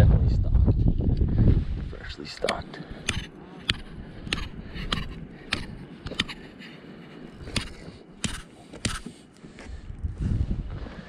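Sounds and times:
sharp clicks: 2.4 - 6.4, 7.4 - 9.1.

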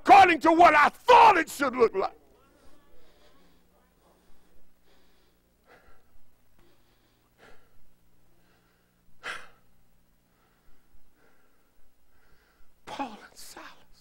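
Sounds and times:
faint electrical hum: 0.0 - 14.0
man breathing hard: 2.6 - 12.8.

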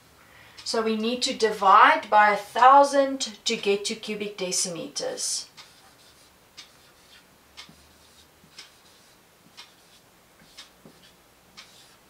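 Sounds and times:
clock ticking faintly: 6.5 - 11.9.

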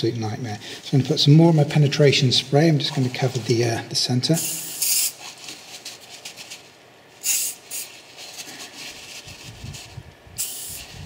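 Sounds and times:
aerosol spray hissing: 4.4 - 5.2, 7.2 - 8.0, 10.4 - 11.0.

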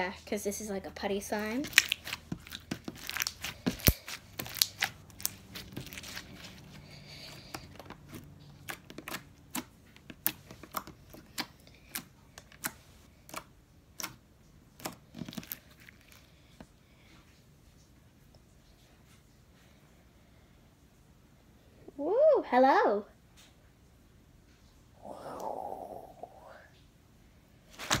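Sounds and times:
slime clicking and popping: 1.6 - 6.2, 8.6 - 14.2, 14.8 - 16.2.

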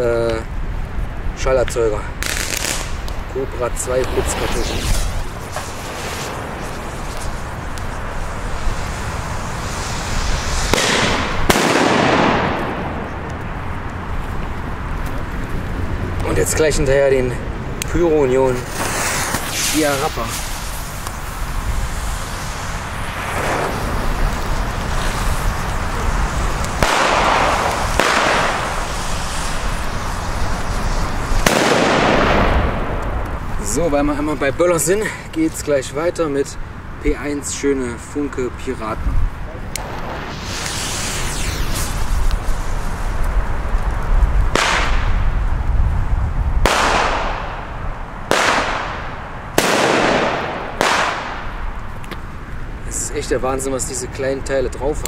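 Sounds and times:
sharp crackles: 0.0 - 55.0
wind rumbling on microphone: 0.0 - 55.0
firecrackers banging with echo: 2.2 - 13.6, 18.6 - 33.6, 44.5 - 45.4, 46.6 - 52.2
fuse hissing: 2.5 - 11.5, 18.6 - 31.4, 39.8 - 43.1.

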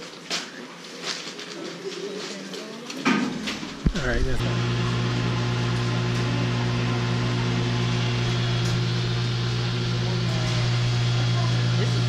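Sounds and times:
low machine hum: 3.5 - 12.0.

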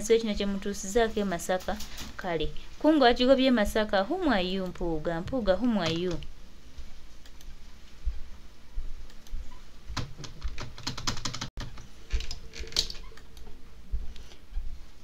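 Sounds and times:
faint low thumps: 13.5 - 15.0.

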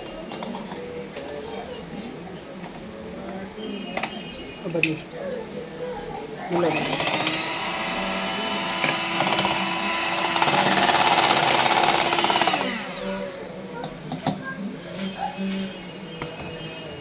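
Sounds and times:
electric hand mixer running: 6.5 - 13.4.

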